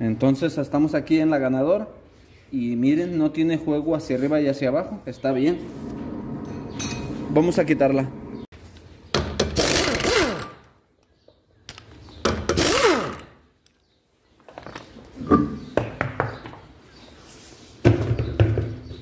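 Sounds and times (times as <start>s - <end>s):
impact wrench spinning: 9.4s - 10.6s, 12.3s - 13.4s.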